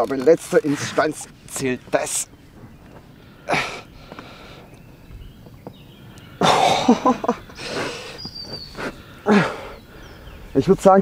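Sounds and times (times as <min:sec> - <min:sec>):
man grunting and exhaling: 0:03.4 - 0:04.0, 0:08.8 - 0:09.8.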